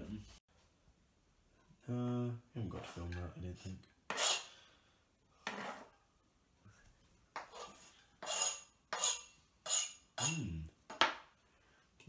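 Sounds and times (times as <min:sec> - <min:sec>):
knife scraping plastic chopping board: 0:05.4 - 0:05.9, 0:07.4 - 0:10.0.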